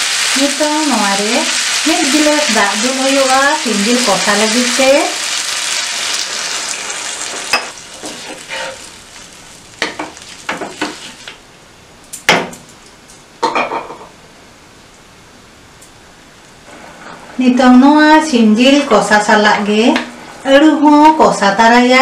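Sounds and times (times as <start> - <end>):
water hissing in hot pan: 0.0 - 11.3
wooden spatula scraping pan: 6.1 - 8.9.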